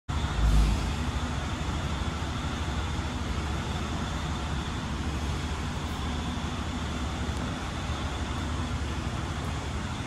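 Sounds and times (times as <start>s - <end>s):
low rumble: 0.1s - 3.4s.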